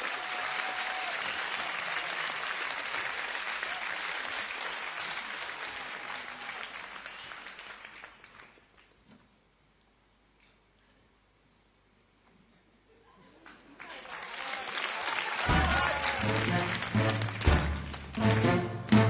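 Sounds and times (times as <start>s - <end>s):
audience applauding: 0.0s - 9.0s, 13.4s - 19.0s.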